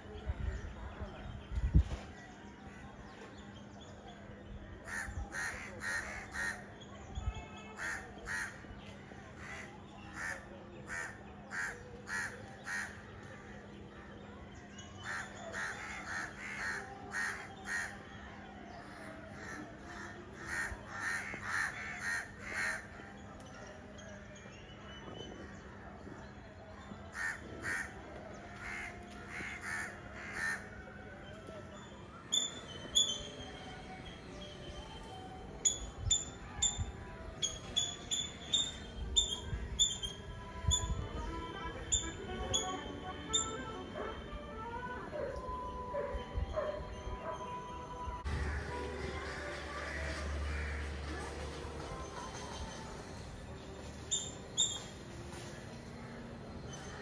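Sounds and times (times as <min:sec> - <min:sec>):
crow cawing: 0:04.9 - 0:06.6, 0:07.8 - 0:08.5, 0:10.9 - 0:13.0, 0:15.0 - 0:17.9, 0:19.4 - 0:22.8, 0:27.1 - 0:27.9, 0:28.6 - 0:30.6, 0:49.9 - 0:50.9.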